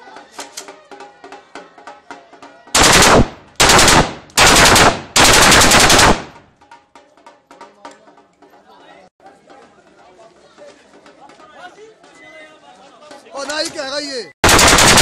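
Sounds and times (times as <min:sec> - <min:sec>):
automatic gunfire bursts: 0:02.8 - 0:06.3, 0:14.4 - 0:15.0.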